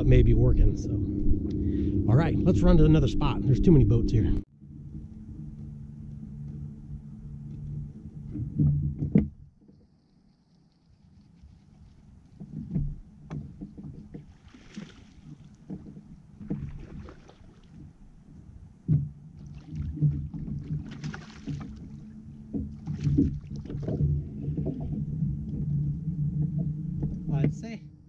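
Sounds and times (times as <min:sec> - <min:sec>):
outboard motor running: 0:00.0 - 0:10.3, 0:11.4 - 0:28.0
hull knocking on water: 0:12.4 - 0:27.8.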